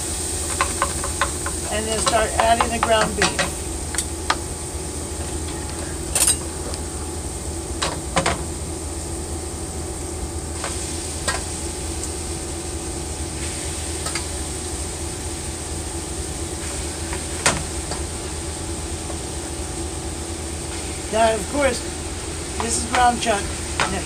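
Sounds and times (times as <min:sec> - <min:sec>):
low hum: 0:00.0 - 0:24.0
vegetables sizzling in a pot: 0:00.0 - 0:24.0
metal tongs clinking: 0:06.0 - 0:06.8.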